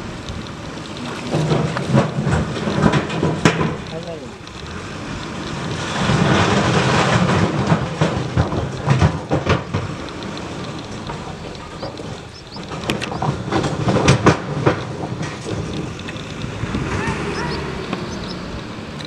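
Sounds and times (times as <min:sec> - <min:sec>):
wind buffeting microphone: 0:00.0 - 0:19.0
sharp knocks: 0:01.2 - 0:04.4, 0:05.5 - 0:10.1.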